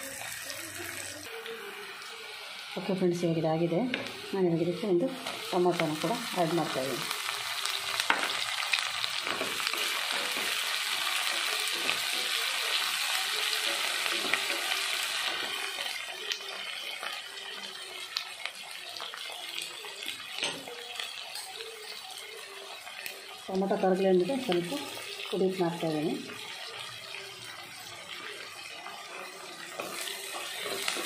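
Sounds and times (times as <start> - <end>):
vegetables sizzling in hot oil: 0.0 - 31.0
spatula scraping and knocking pan: 29.1 - 31.0.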